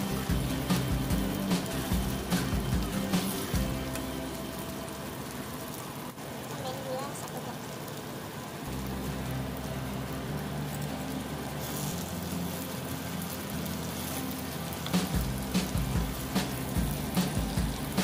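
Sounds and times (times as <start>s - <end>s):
background music: 0.0s - 6.2s, 8.4s - 18.0s
chillies sizzling in oil: 0.0s - 18.0s.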